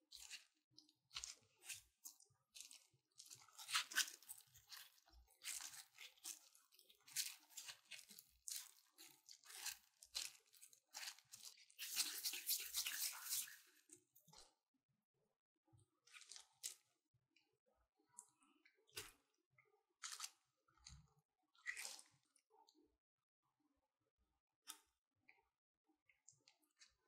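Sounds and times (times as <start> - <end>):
plastic gloves crinkling: 2.5 - 13.9.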